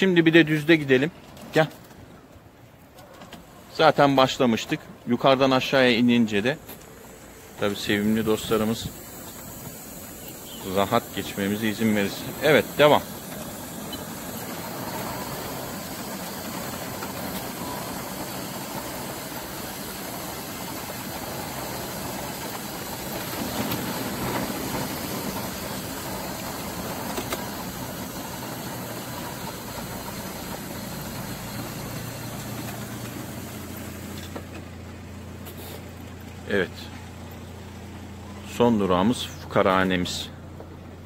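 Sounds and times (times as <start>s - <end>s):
wheels rattling on pavers: 0.2s - 41.0s
wheelchair motor hum: 6.6s - 36.4s.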